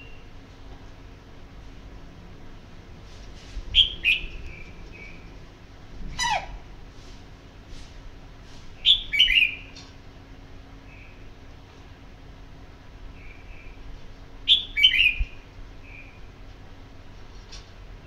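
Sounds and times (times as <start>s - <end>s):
bulbul calling: 3.8s - 5.2s, 14.5s - 16.2s.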